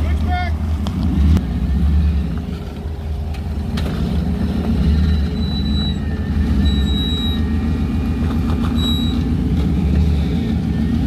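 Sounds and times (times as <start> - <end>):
engine running at low revs: 0.0 - 11.0
thin high squeak: 5.0 - 7.5, 8.7 - 9.3.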